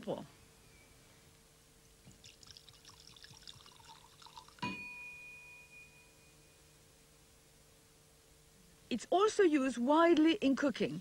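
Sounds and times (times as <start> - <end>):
liquid pouring into glass: 2.1 - 4.8
glass clink ringing: 3.5 - 6.7.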